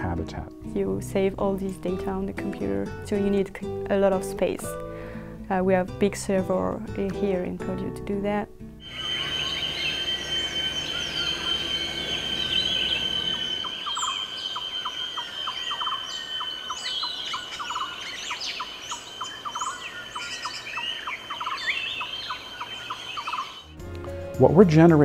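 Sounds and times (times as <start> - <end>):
high insect drone: 8.8 - 23.7
birds calling and chirping: 8.8 - 23.8.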